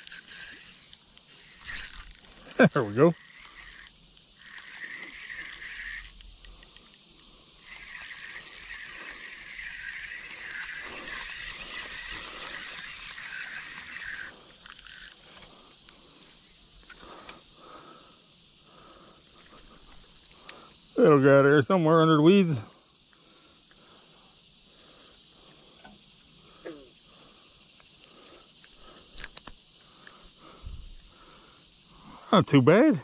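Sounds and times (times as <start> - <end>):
fishing reel whirring: 0.0 - 20.7.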